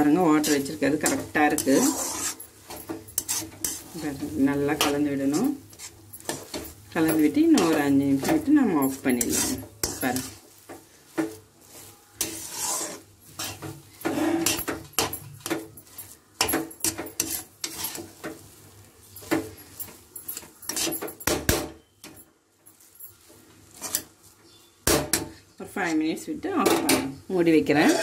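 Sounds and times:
metal ladle scraping a pan: 0:00.0 - 0:21.3, 0:23.6 - 0:24.2, 0:27.7 - 0:28.0.

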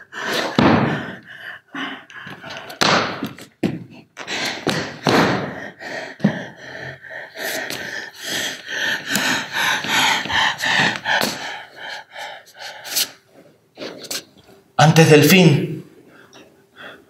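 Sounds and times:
man gasping and panting: 0:00.0 - 0:13.3.

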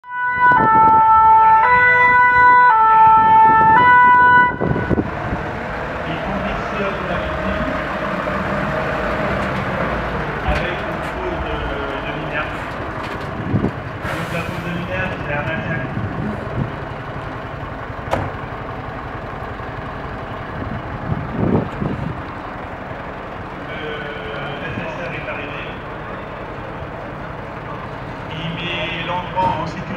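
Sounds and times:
two-tone fire engine siren: 0:00.0 - 0:05.4, 0:06.2 - 0:10.0
truck engine running: 0:01.2 - 0:29.9
truck door shutting: 0:18.0 - 0:18.4.

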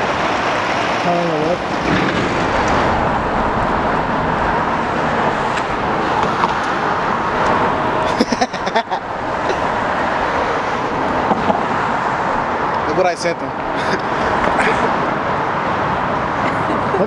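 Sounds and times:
passing cars: 0:00.0 - 0:17.0.

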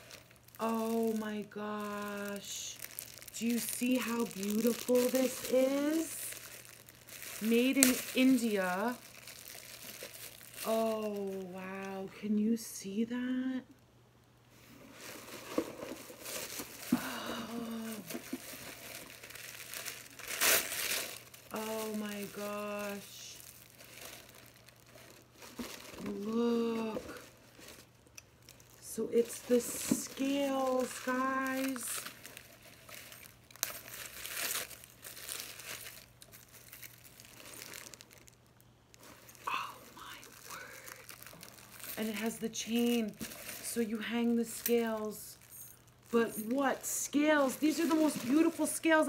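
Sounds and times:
paper and plastic crinkling: 0:00.0 - 0:12.0, 0:14.6 - 0:49.0
woman humming: 0:16.9 - 0:18.1.

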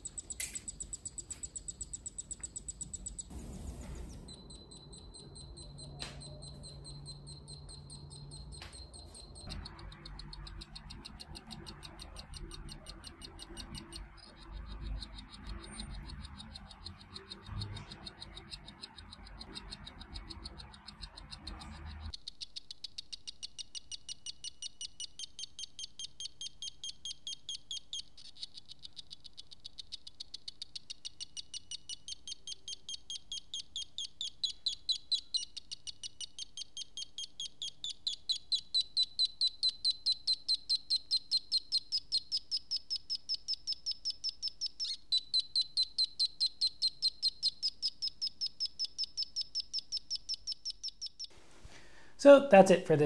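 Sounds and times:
piezo buzzer chirping: 0:00.0 - 0:51.3.

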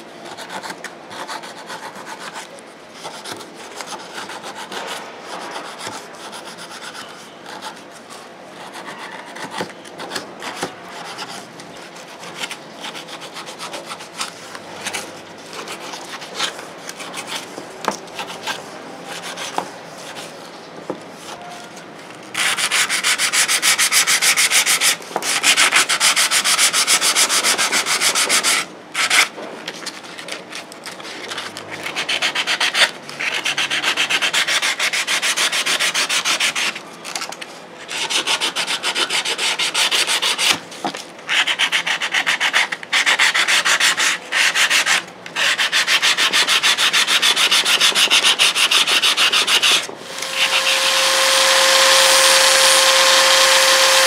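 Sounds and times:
scraping on a folding knife: 0:00.3 - 0:20.4, 0:41.3 - 0:54.0
sandpaper strokes on a knife: 0:22.4 - 0:29.3, 0:31.8 - 0:36.8, 0:37.9 - 0:40.5, 0:41.3 - 0:54.0.

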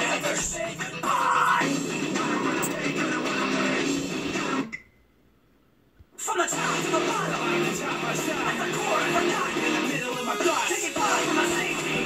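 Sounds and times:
background song with guitar: 0:00.0 - 0:04.7, 0:06.5 - 0:12.0.

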